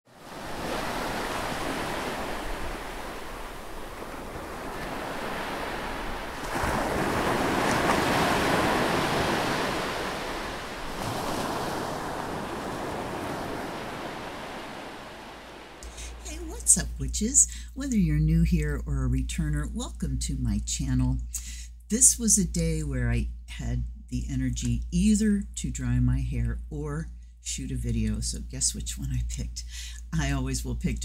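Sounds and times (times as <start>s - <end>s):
surf rushing: 0.1s - 16.5s.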